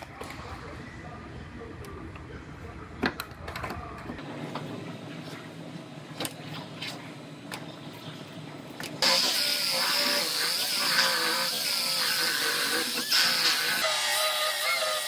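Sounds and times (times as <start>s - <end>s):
power tool hissing and whining: 9.0s - 15.0s.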